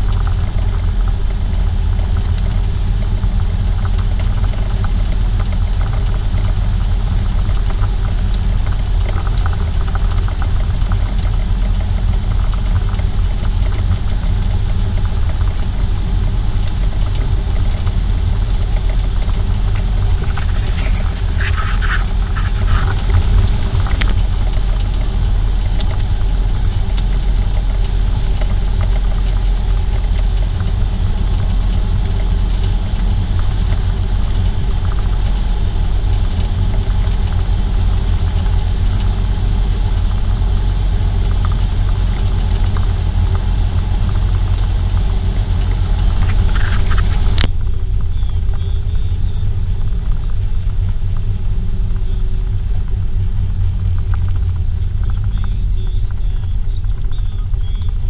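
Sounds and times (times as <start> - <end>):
car driving at highway speed: 0.0 - 58.0
clicks and rattles: 18.6 - 26.1.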